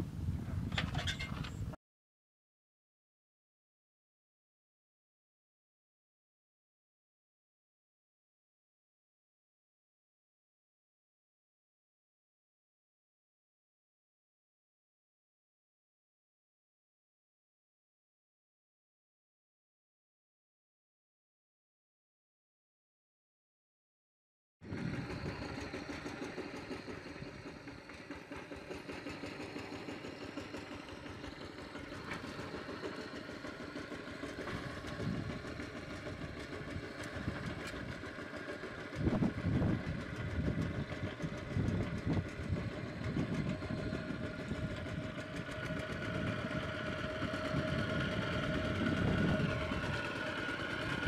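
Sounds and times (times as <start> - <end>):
walking tractor engine running: 0.1 - 1.7, 24.6 - 51.0.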